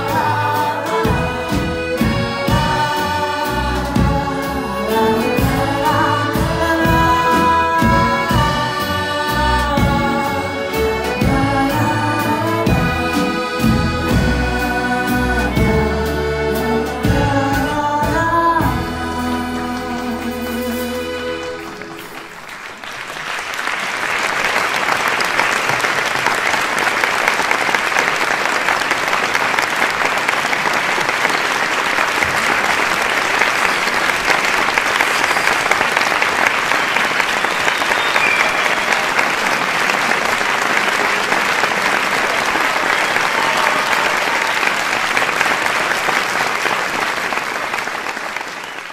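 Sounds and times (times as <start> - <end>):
audience applauding: 19.4 - 48.9.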